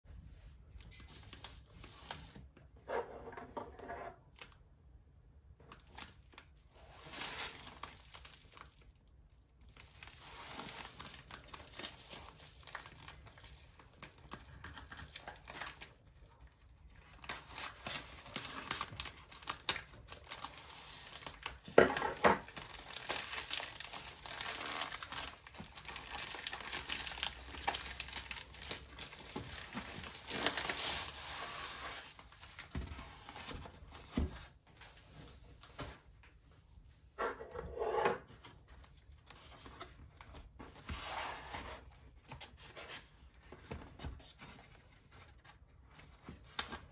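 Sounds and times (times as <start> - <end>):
plastic mailer crinkling: 9.7 - 32.7
sharp plastic crackle: 10.8 - 31.2.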